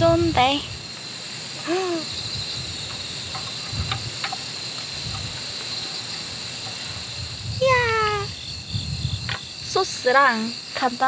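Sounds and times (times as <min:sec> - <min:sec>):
crickets chirping: 0:00.0 - 0:11.0
person humming: 0:01.6 - 0:02.1.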